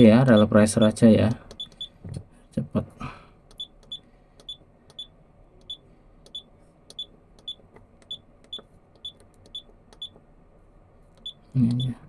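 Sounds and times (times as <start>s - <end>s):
short high key beeps: 1.5s - 2.0s, 3.5s - 10.2s.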